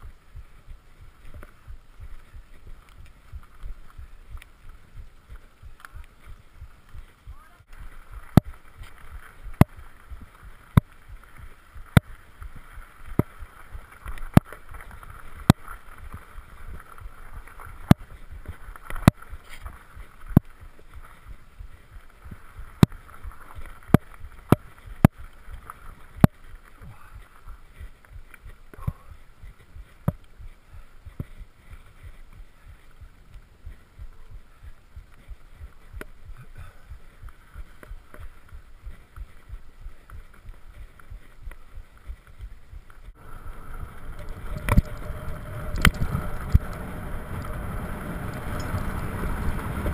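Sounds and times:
rumble of tyres and wind: 0:00.0 - 0:49.9.

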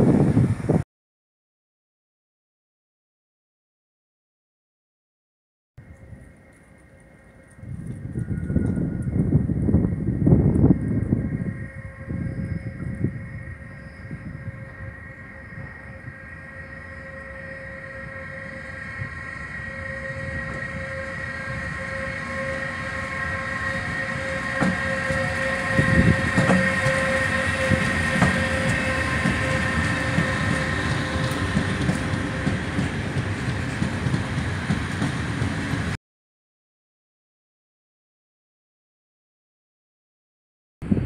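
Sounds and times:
electric locomotive whine: 0:00.0 - 0:00.8, 0:05.8 - 0:36.0
rumble and clatter of train wheels: 0:05.8 - 0:36.0.

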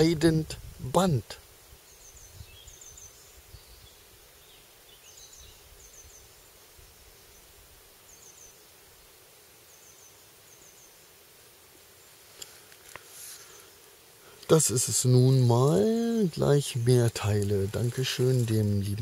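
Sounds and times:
small bird chirping: 0:01.8 - 0:08.6.

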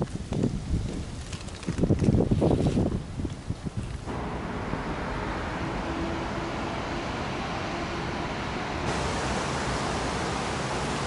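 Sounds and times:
outdoor ambient hiss: 0:00.0 - 0:11.0.

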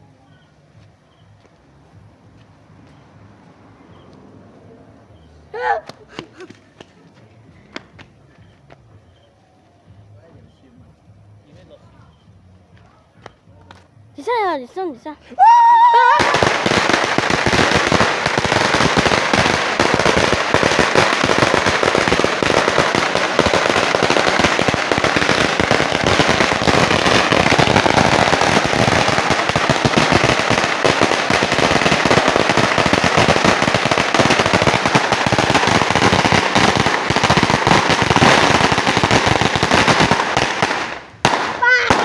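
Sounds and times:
firecrackers crackling: 0:10.0 - 0:42.0.

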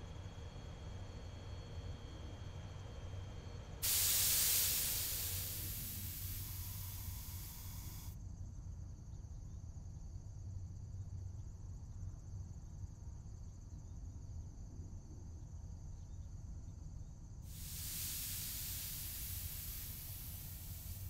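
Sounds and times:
air hissing: 0:03.8 - 0:08.1, 0:17.5 - 0:21.0
high pulsing chirr: 0:03.8 - 0:08.1, 0:17.6 - 0:21.0.

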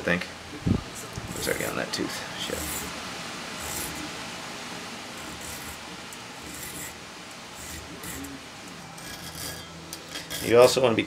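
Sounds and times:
hand file rasping on saw teeth: 0:01.3 - 0:01.7, 0:02.4 - 0:02.9, 0:03.6 - 0:04.0, 0:05.2 - 0:05.8, 0:06.4 - 0:07.0, 0:07.6 - 0:10.8.

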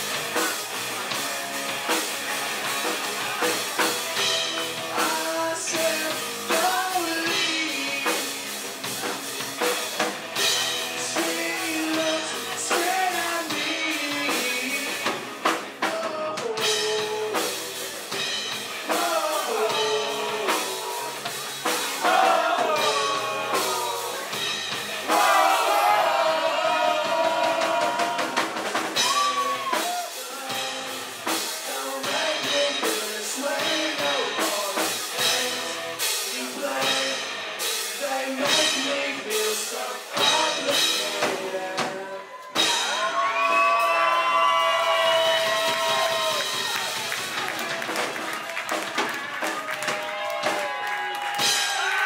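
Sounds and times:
live rock band playing: 0:00.0 - 0:52.0
man singing: 0:04.8 - 0:09.2, 0:10.7 - 0:18.2, 0:18.8 - 0:21.4, 0:22.0 - 0:24.4, 0:25.1 - 0:42.7.

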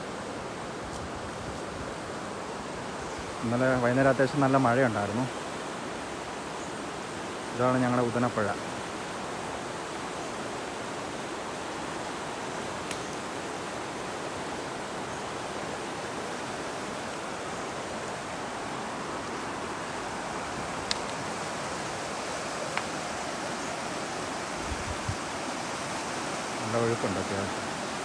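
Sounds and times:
river water rushing: 0:00.0 - 0:28.0.

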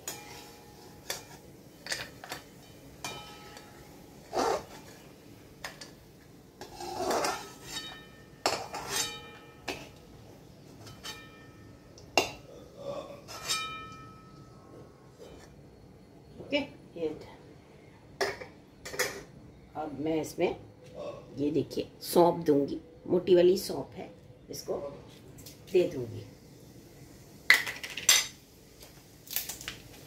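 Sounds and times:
metal spoon clinking on metal pan: 0:00.0 - 0:03.9, 0:06.6 - 0:09.9.

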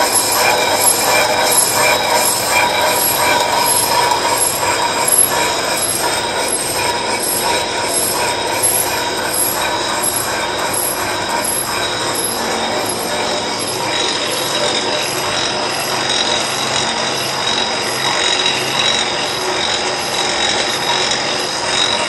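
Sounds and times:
lathe running with high whine: 0:00.0 - 0:22.0.

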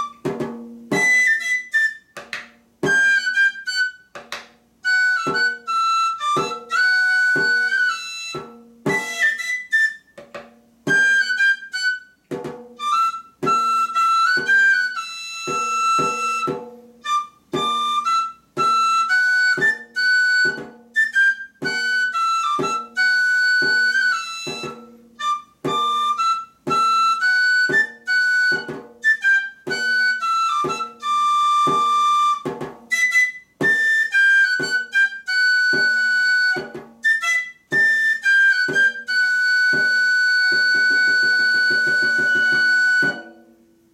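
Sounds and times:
whistle-like pipe melody: 0:00.0 - 0:43.6
drum beaten in regular time: 0:00.2 - 0:01.2.

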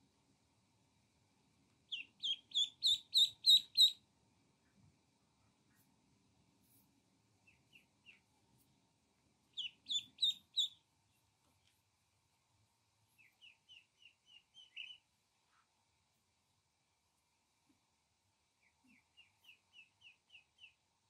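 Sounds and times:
ducklings peeping: 0:01.9 - 0:04.0, 0:07.4 - 0:08.3, 0:09.5 - 0:10.8, 0:13.2 - 0:15.1, 0:18.6 - 0:20.8.

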